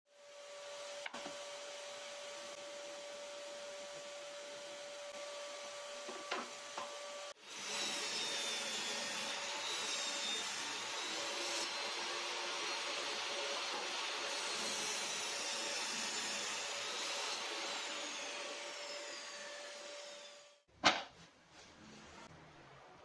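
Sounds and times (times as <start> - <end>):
table saw running: 0.4 - 20.6
saw blade cutting plywood: 7.4 - 20.6.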